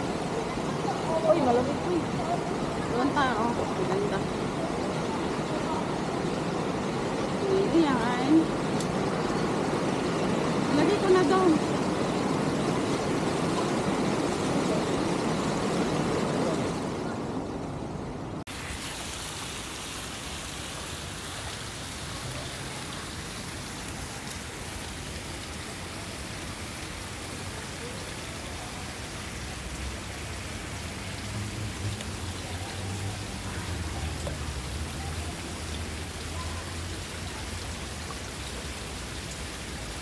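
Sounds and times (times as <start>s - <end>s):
splashing water hiss: 18.5s - 40.0s.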